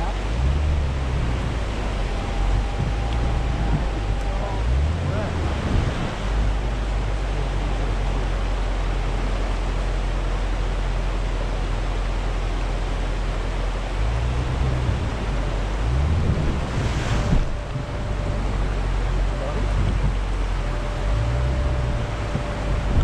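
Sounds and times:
river water rushing: 0:00.0 - 0:23.0
vehicle engine running low: 0:00.0 - 0:23.0.

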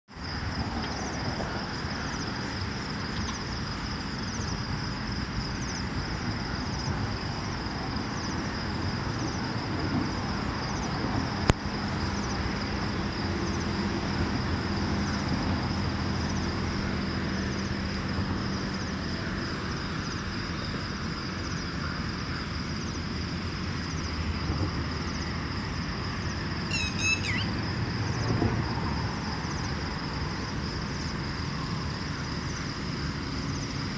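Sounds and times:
distant traffic rumble: 0:00.1 - 0:33.9
high-pitched insect drone: 0:25.0 - 0:33.9
bird chirps: 0:26.7 - 0:27.6.

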